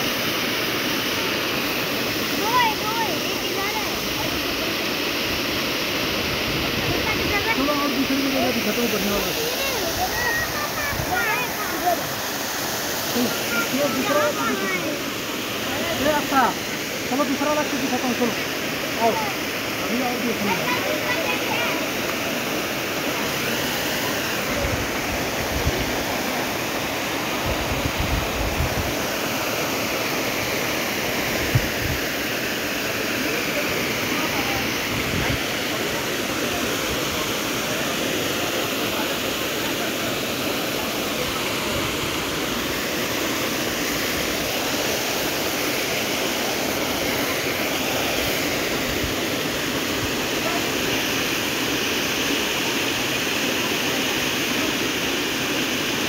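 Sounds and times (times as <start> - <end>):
small waterfall rushing: 0.0 - 56.0
wind on microphone: 27.4 - 29.0, 31.4 - 32.0, 34.8 - 35.5.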